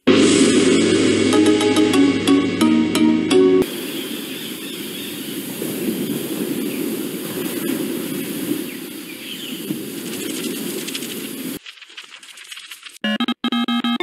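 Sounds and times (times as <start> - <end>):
flipbook pages riffling: 10.1 - 13.0.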